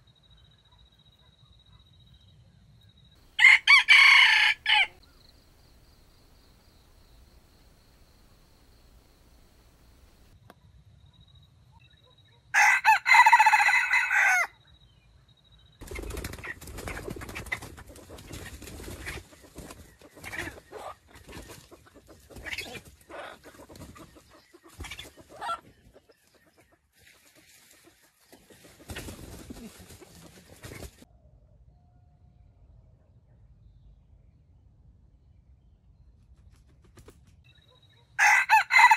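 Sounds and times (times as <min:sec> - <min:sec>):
rooster crowing: 0:03.3 - 0:05.0, 0:12.6 - 0:14.5, 0:38.2 - 0:38.9
chicken clucking: 0:15.8 - 0:31.0
rustling in dry leaves: 0:27.0 - 0:31.0.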